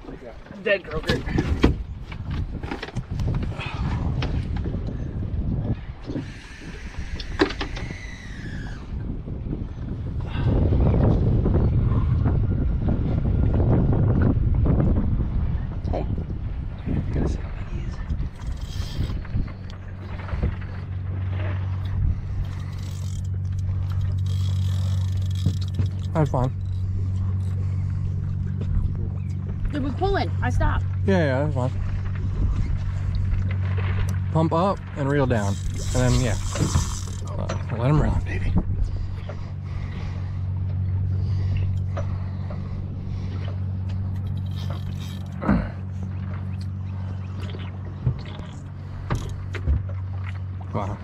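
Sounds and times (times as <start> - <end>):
boat engine humming: 0.0 - 51.0
outboard motor idling: 0.0 - 51.0
tackle scraping and ticking: 22.4 - 27.6, 34.8 - 37.7.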